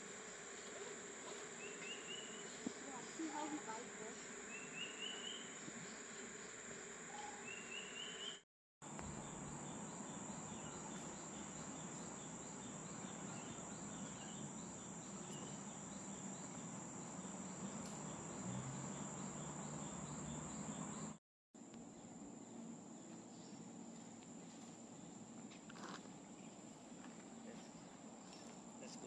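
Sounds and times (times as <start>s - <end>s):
high-pitched insect drone: 0.0s - 8.3s, 8.9s - 21.2s.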